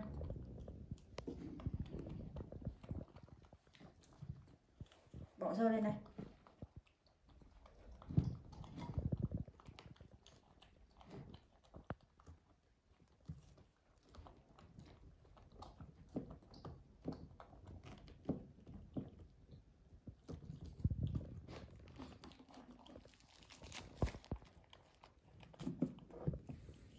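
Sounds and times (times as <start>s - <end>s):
soft chewing: 0.0s - 26.9s
sticky tearing of fruit: 20.2s - 26.7s.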